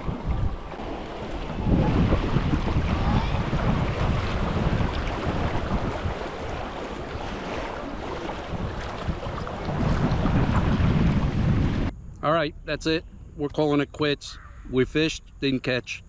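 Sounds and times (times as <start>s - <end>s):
river water rushing and splashing: 0.0s - 11.9s
wind buffeting microphone: 0.0s - 13.4s.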